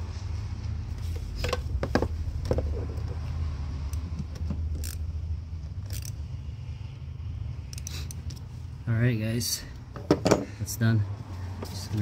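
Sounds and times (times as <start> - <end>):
metallic clicks of hose clamp: 3.8 - 6.2, 7.6 - 8.5.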